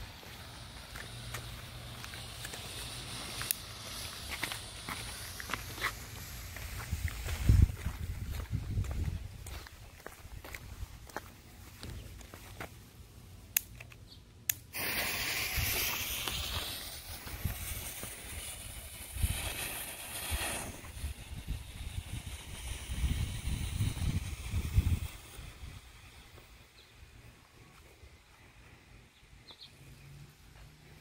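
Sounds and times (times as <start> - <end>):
smoke bomb hissing: 0.0 - 8.8, 14.7 - 29.0.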